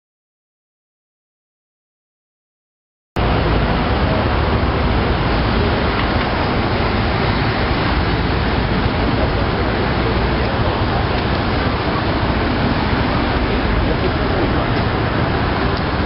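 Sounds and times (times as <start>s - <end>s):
hum of passing vehicles: 3.2s - 16.0s.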